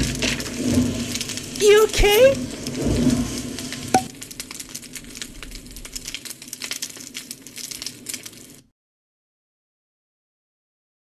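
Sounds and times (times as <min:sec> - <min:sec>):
crackling and sizzling: 0:00.0 - 0:08.7
sharp pop: 0:03.9 - 0:04.1.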